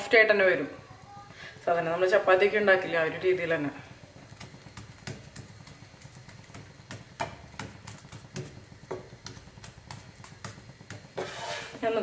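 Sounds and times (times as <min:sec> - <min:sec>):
flatbread ticking on hot pan: 0:04.3 - 0:11.2.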